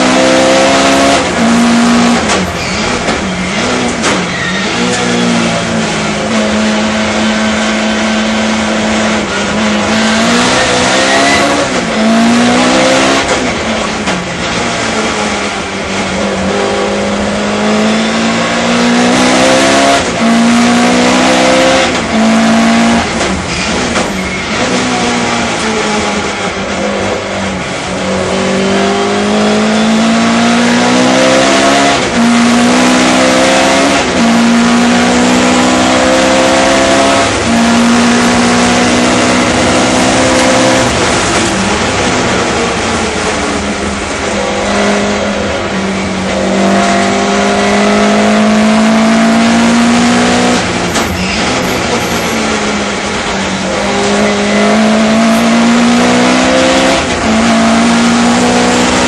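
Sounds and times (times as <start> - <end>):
racing car engine revving: 0.0 - 59.0.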